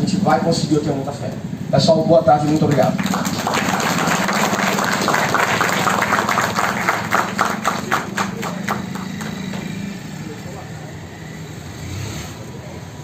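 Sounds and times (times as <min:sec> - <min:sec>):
crowd applauding: 0:02.6 - 0:10.1.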